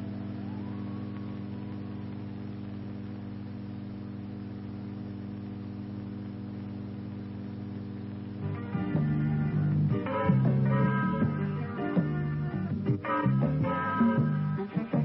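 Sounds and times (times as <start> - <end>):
faint rising tone: 0.0 - 2.5
electrical mains hum: 0.0 - 15.0
faint hiss: 0.0 - 15.0.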